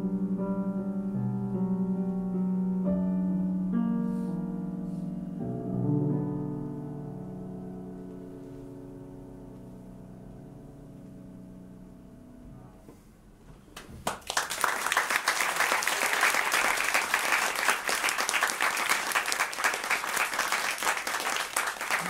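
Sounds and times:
piano chord: 0.0s - 13.1s
audience applauding: 13.8s - 22.0s.

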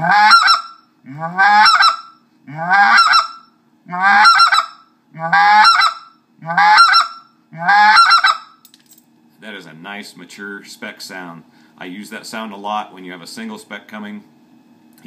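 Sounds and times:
goose call two-note honk: 0.0s - 8.4s.

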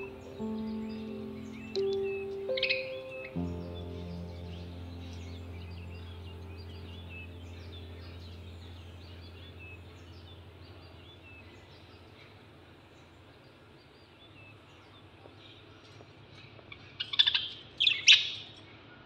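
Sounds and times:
low sustained music note: 0.0s - 13.7s.

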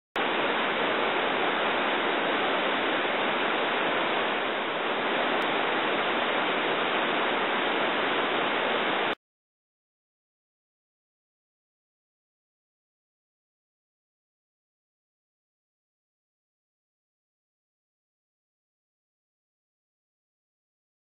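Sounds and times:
waterfall rushing: 0.2s - 9.2s.

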